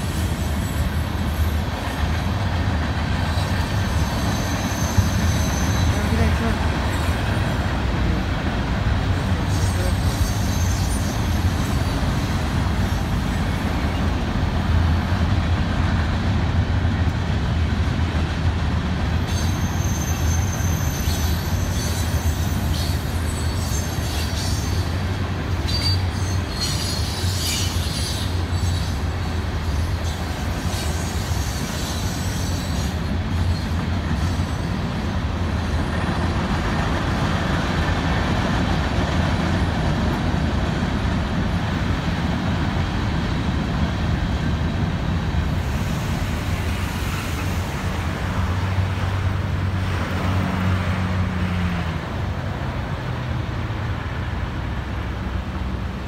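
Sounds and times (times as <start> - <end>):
freight train wheels rumbling: 0.0 - 56.0
high-pitched wheel squeals: 3.4 - 6.0, 9.5 - 12.0, 19.3 - 24.9, 25.6 - 29.0.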